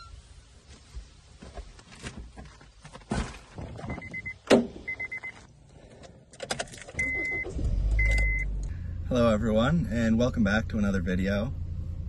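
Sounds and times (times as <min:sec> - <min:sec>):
car warning chime beeping: 0:03.9 - 0:05.4, 0:07.0 - 0:08.5.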